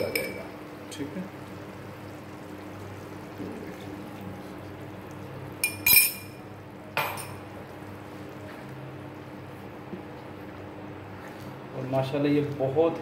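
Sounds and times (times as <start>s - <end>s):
metal cookware clinking: 0.0s - 0.5s, 5.6s - 6.4s
low steady background hum: 0.0s - 13.0s.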